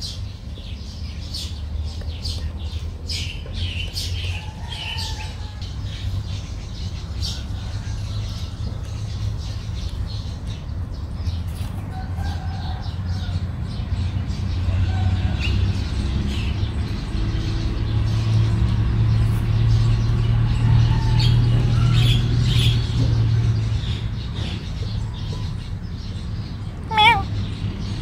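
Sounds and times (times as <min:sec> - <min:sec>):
faint bird chirps: 0:26.9 - 0:27.3.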